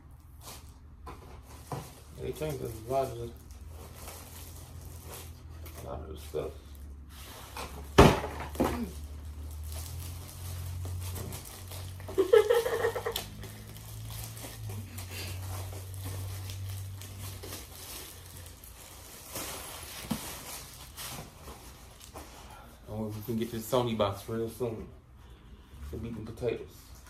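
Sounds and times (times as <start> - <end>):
plastic packaging crinkling: 1.5 - 7.2, 7.8 - 22.3.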